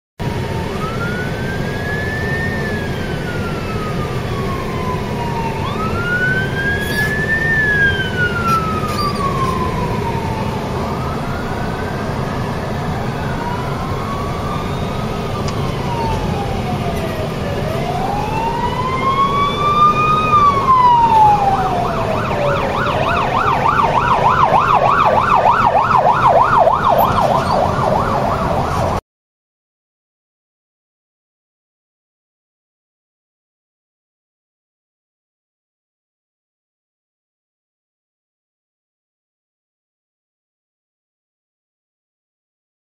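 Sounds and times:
emergency sirens wailing: 0.2s - 29.0s
traffic rumble: 0.2s - 29.0s
siren fast yelp warble: 0.8s - 29.0s.

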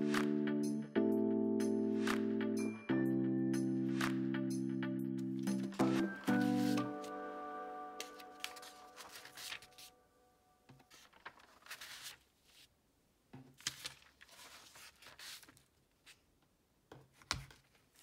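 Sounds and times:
background music: 0.0s - 10.6s
notebook pages rustling: 5.4s - 10.0s, 10.7s - 12.8s, 13.5s - 16.3s, 17.0s - 18.0s.

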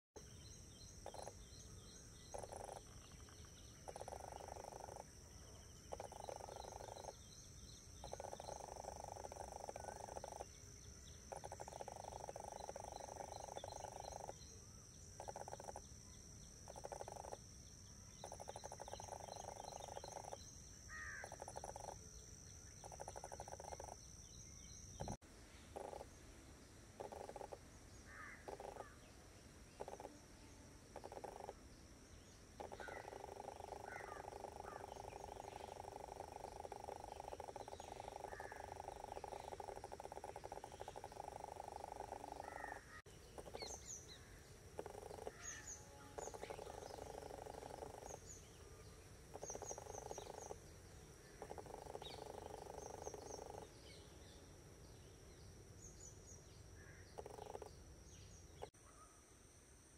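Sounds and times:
small bird chirps: 0.9s - 1.6s, 2.2s - 5.1s, 5.9s - 7.2s, 8.0s - 10.5s, 18.2s - 20.4s, 49.3s - 50.6s
frog calling in pulsed trills: 1.0s - 1.4s, 2.3s - 5.1s, 5.8s - 7.2s, 8.0s - 10.6s, 11.3s - 14.5s, 15.2s - 15.9s, 16.6s - 17.4s, 18.1s - 22.1s, 22.7s - 24.1s, 25.8s - 26.1s, 27.0s - 27.6s, 28.4s - 28.9s, 29.8s - 30.2s, 30.9s - 31.6s, 32.6s - 43.8s, 44.8s - 48.3s, 49.3s - 50.6s, 51.4s - 53.7s, 57.1s - 57.7s.

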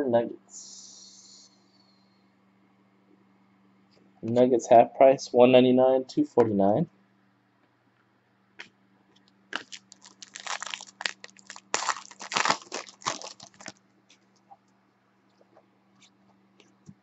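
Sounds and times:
wrapper tearing and crinkling: 9.6s - 13.8s.

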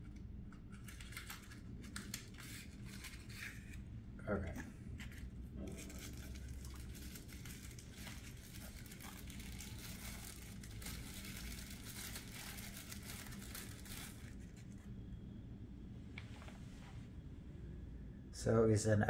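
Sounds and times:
wrapping crinkling and tearing: 0.5s - 3.8s, 5.0s - 14.9s.

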